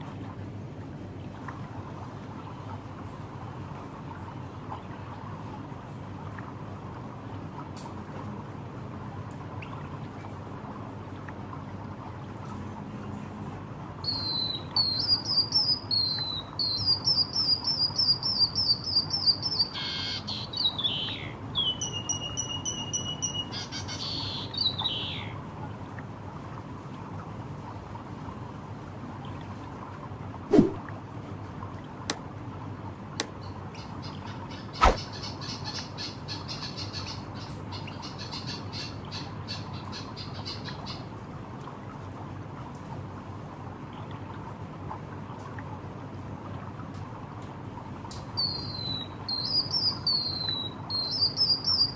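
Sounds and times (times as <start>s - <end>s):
bird singing: 14.0s - 25.4s, 48.4s - 51.9s.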